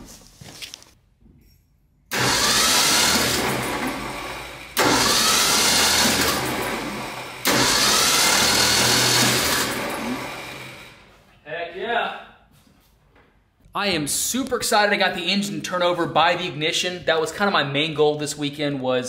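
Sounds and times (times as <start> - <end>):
engine cranking by starter: 2.1 - 11.1.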